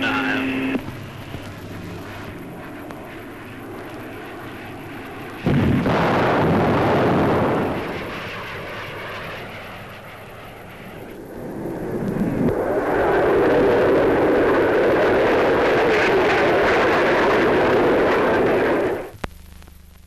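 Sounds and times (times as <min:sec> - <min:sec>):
jet aircraft noise: 0:00.0 - 0:19.2
sonic boom: 0:05.4 - 0:08.8.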